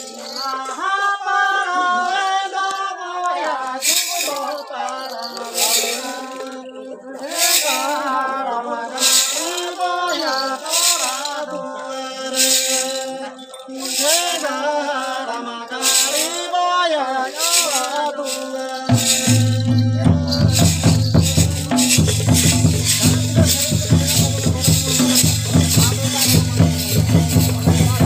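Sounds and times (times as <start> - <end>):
person singing: 0.0 - 28.0
rattling hiss: 7.4 - 8.1, 12.2 - 13.2, 13.8 - 16.5, 17.2 - 28.0
deep drum beats: 18.9 - 28.0.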